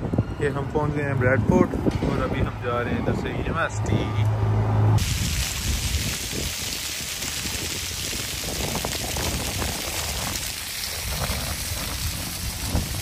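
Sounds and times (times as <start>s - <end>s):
fountain water splashing: 5.0s - 13.0s.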